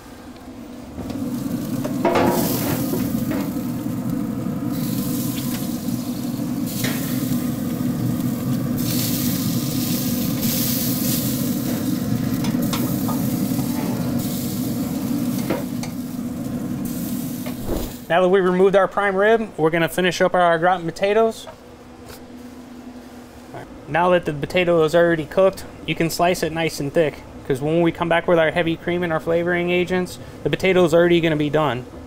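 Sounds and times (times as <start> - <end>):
roast meat sizzling: 1.0 - 18.1.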